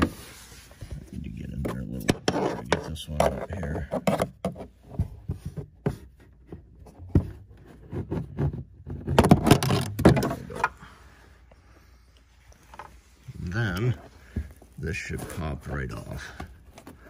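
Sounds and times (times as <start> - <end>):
plastic trim clicks and scraping: 7.9 - 10.8.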